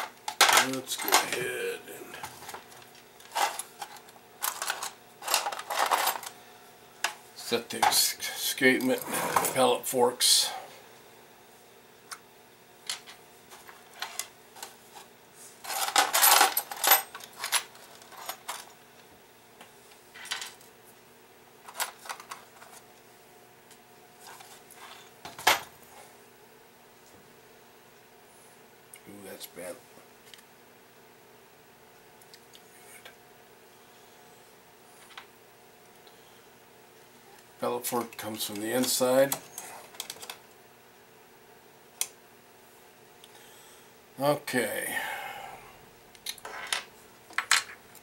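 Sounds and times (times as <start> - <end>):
faint steady hum: 0.0 - 48.0
small metal parts rattling in tray: 0.3 - 1.4, 3.3 - 6.3, 15.6 - 18.7.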